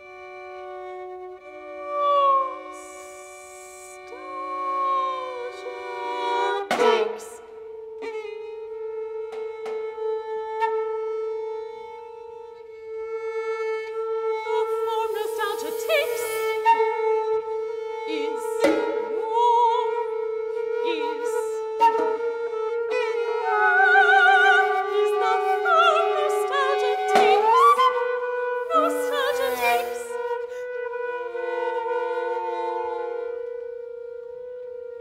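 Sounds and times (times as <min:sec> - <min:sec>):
soprano singing: 0:00.3 - 0:09.1, 0:13.8 - 0:33.6
percussion strokes: 0:14.6 - 0:16.8, 0:28.8 - 0:30.2.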